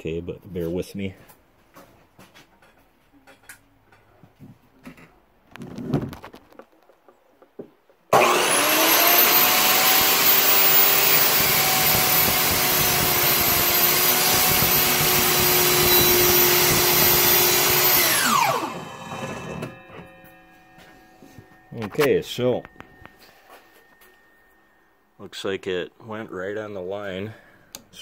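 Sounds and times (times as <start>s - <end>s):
miter saw motor whining: 8.1s - 20.4s
saw blade spinning down: 8.1s - 20.8s.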